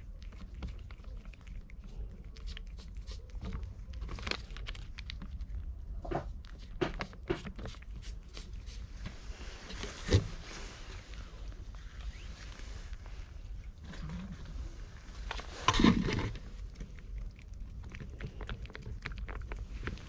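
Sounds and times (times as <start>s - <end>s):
cat chewing and licking: 0.0s - 20.0s
low steady rumble: 0.0s - 20.0s
paper crinkling: 0.3s - 5.5s.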